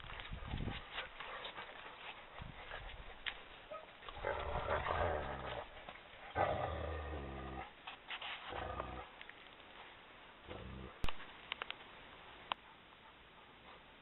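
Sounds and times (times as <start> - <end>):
dog growling: 4.2 - 5.7, 6.3 - 7.7, 10.5 - 11.0.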